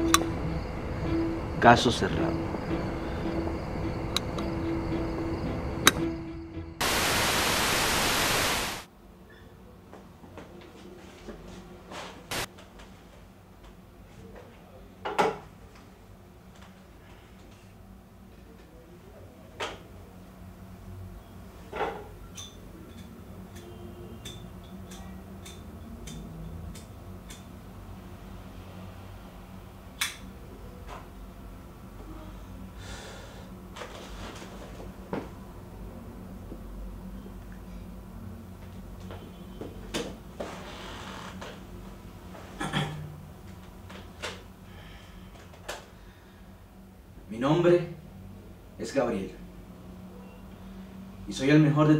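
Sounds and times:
steady low hum: 0.0s - 8.9s
loud static hiss: 6.8s - 8.9s, 12.3s - 12.5s, 40.1s - 45.0s.

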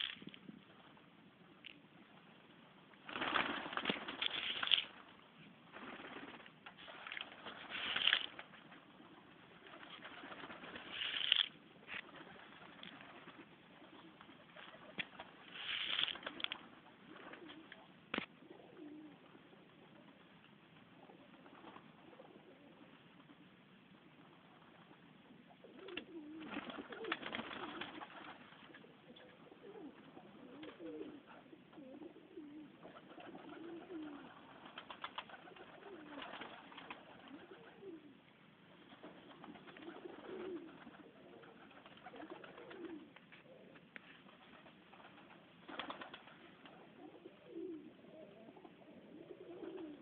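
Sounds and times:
pigeons cooing: 12.0s - 20.1s, 21.0s - 23.0s, 25.5s - 38.3s, 39.0s - 50.0s.

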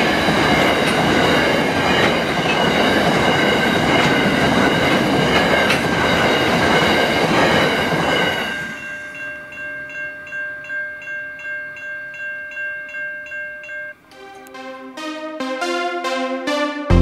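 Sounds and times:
train wheels clattering on rails: 0.0s - 9.2s
level crossing warning bell: 0.0s - 15.0s
electronic music: 14.1s - 17.0s.

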